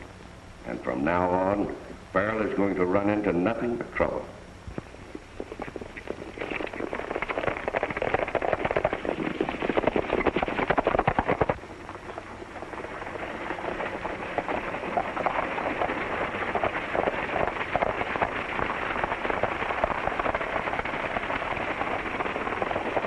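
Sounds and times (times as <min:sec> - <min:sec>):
galloping horse hoofbeats: 0:05.2 - 0:23.0.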